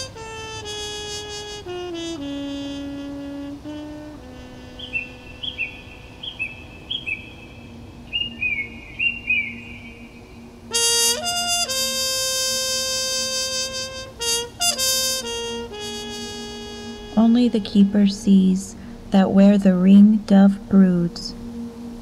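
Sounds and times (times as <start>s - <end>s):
trumpet notes: 0.0s - 8.0s, 10.5s - 22.0s
low held tone: 16.1s - 22.0s.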